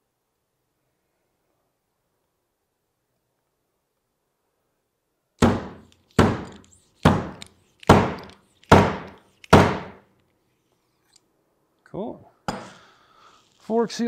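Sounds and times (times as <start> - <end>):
sharp metal knocks: 5.4 - 10.0.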